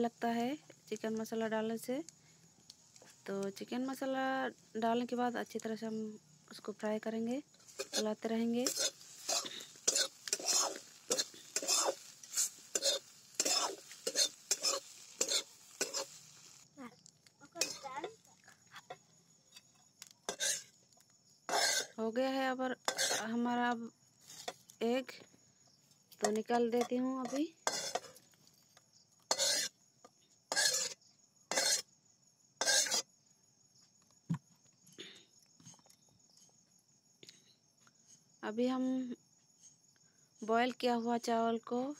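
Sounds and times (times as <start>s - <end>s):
metal spatula scraping metal pan: 7.5s - 16.3s, 17.6s - 17.8s, 20.3s - 20.7s, 21.5s - 22.0s, 22.8s - 23.3s, 26.3s - 28.1s, 29.3s - 29.7s, 30.5s - 31.8s, 32.6s - 33.1s.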